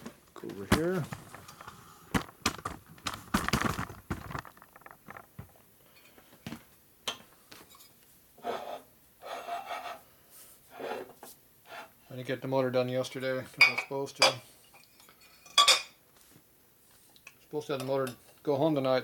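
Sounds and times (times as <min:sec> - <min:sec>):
metal parts clicking and knocking: 0:00.4 - 0:05.6
metal parts scraping and rubbing: 0:00.8 - 0:05.5.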